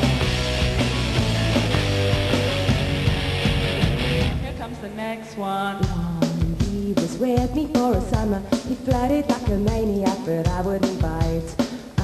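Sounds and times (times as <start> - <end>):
electric guitars: 0.0 - 5.0
drum kit beat: 0.0 - 5.2, 5.8 - 12.0
woman singing: 4.5 - 12.0.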